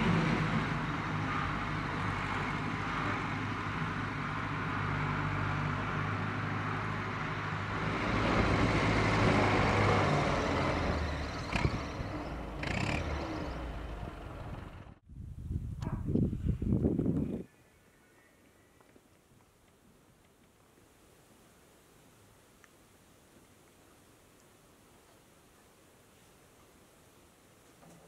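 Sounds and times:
tractor engine running: 0:00.0 - 0:15.1.

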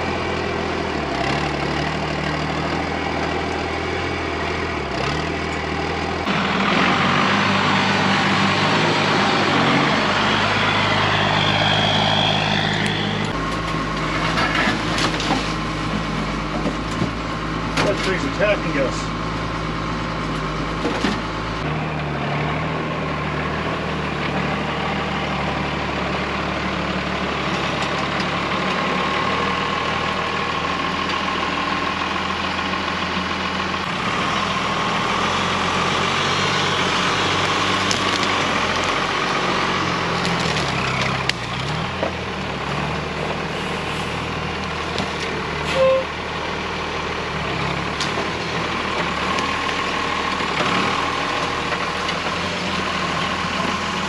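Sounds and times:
diesel truck engine running: 0:00.0 - 0:54.0
branches cracking and scraping: 0:37.3 - 0:39.0, 0:40.0 - 0:41.9.

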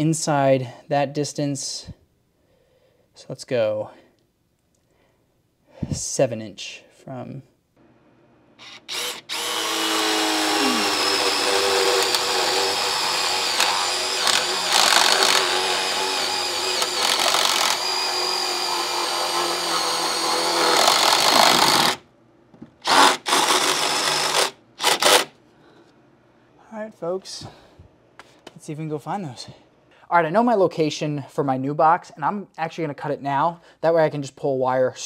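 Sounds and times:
power drill running: 0:08.6 - 0:22.0, 0:22.8 - 0:25.3
short drill trigger bursts: 0:08.6 - 0:22.0, 0:22.8 - 0:25.3.

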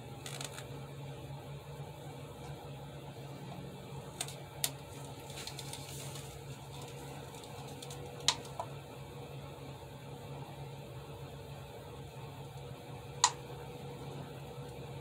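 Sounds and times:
steady low hum: 0:00.0 - 0:15.0
soft rustle: 0:05.2 - 0:07.1.

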